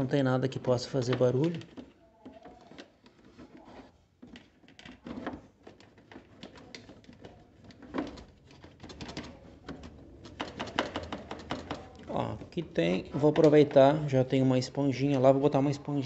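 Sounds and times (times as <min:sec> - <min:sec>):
hands tapping plastic panel: 0:00.7 - 0:14.1.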